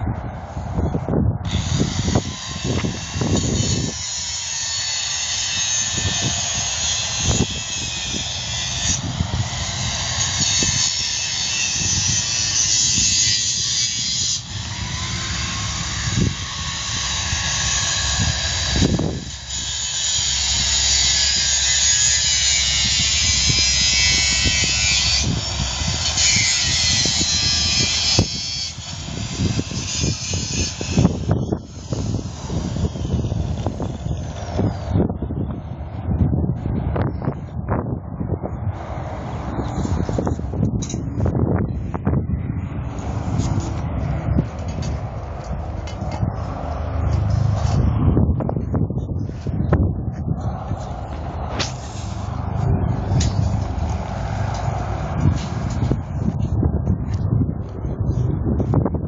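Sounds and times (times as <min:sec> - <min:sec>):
power tool cutting: 0:01.4 - 0:34.4.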